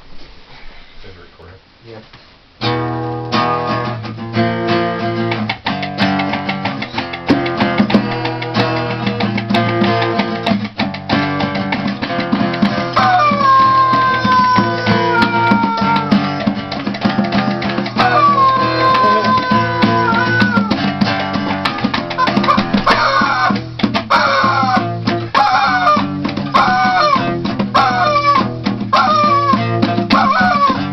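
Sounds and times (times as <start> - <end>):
strummed acoustic guitar: 2.6 - 30.9
fast bongo taps: 4.4 - 30.9
rubber chicken squawking: 12.8 - 20.9, 21.6 - 30.9.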